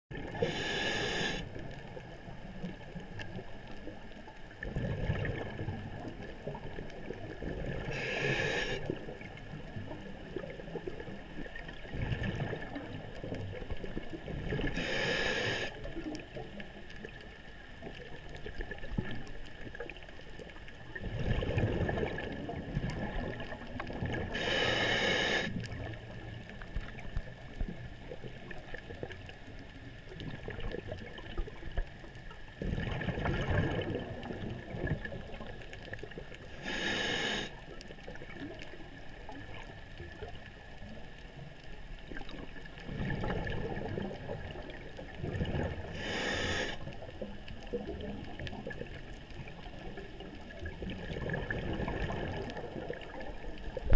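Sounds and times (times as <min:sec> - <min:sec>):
gurgling exhaled bubbles: 0:00.1 - 0:17.2, 0:17.8 - 0:29.4, 0:30.0 - 0:40.5, 0:42.0 - 0:53.9
diver inhaling through regulator: 0:00.2 - 0:01.5, 0:07.9 - 0:09.0, 0:14.7 - 0:15.8, 0:24.3 - 0:25.6, 0:36.6 - 0:37.6, 0:45.8 - 0:46.9.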